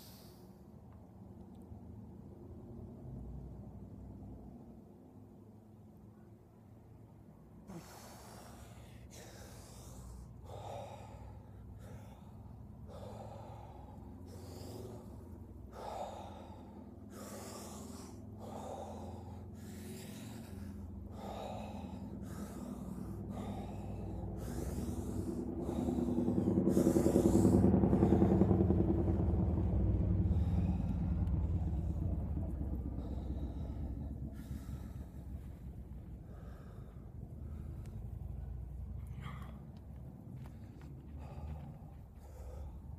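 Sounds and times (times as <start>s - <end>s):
long breath with voiced tone: 0.0s - 0.5s, 7.7s - 28.5s
person breathing forcefully: 0.0s - 0.6s, 7.5s - 42.9s.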